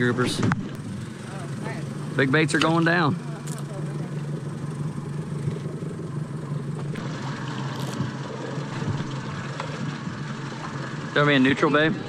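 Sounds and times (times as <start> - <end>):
outboard motors idling: 0.0 - 12.0.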